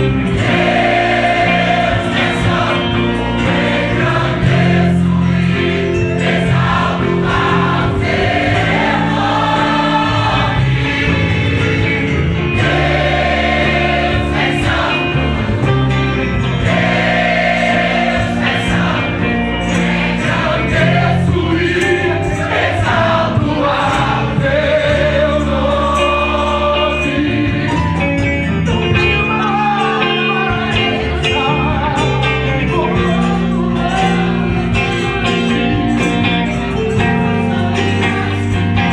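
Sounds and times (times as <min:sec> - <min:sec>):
choir singing gospel: 0:00.0 - 0:38.9
man singing into microphone: 0:29.0 - 0:35.5.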